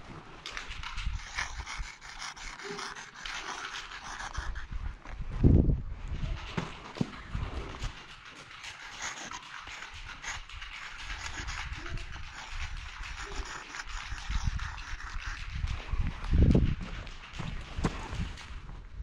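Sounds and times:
marker scratching on rough wall: 0.6s - 4.8s, 7.9s - 15.7s.

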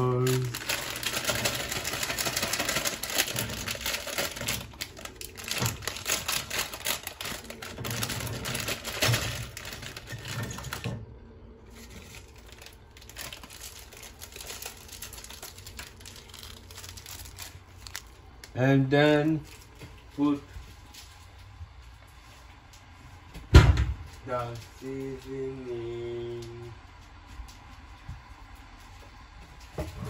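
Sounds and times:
plastic wrapper crinkling: 0.0s - 10.9s, 11.7s - 20.2s.

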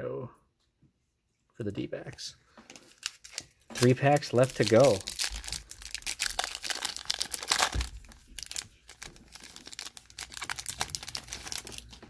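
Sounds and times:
wrapper tearing and crinkling: 2.8s - 12.0s.

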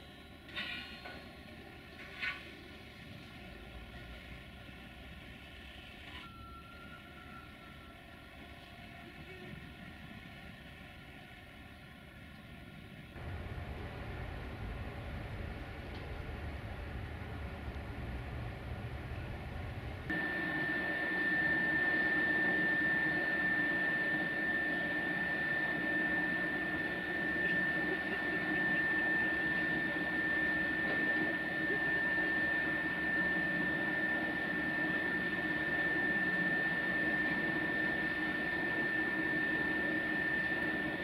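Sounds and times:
electric motors whining: 20.1s - 41.0s.

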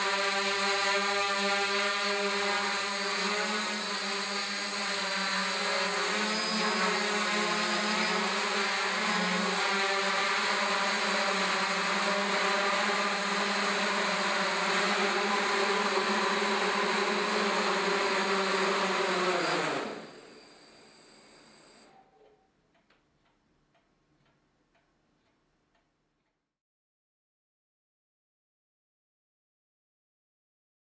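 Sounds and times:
drone motors and propellers: 0.0s - 21.9s
faint high whine: 0.0s - 22.6s.

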